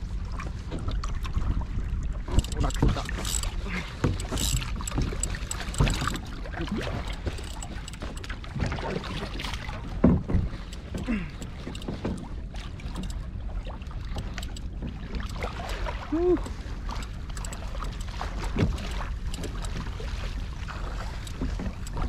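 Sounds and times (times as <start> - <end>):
water slapping against kayak hull: 0.3 - 22.0
fishing gear knocks and rattles: 2.3 - 8.8, 9.9 - 13.2, 17.0 - 19.9.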